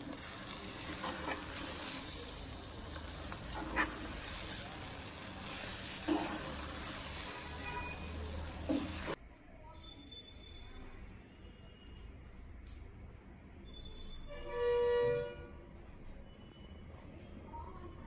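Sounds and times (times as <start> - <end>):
spoon stirring thick halwa: 0.0 - 9.2.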